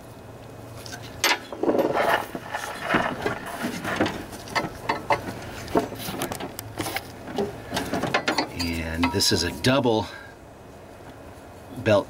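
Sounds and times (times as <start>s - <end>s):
steel parts clinking and knocking: 0.9s - 9.4s.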